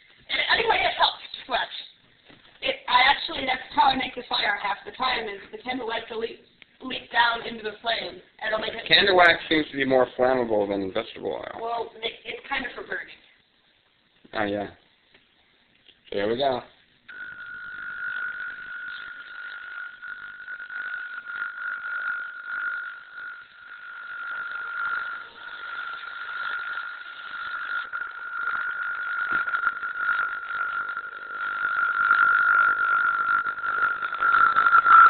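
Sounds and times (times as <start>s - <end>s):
ultrasonic probe rasping whine: 0.0s - 35.0s
crackling: 11.3s - 35.0s.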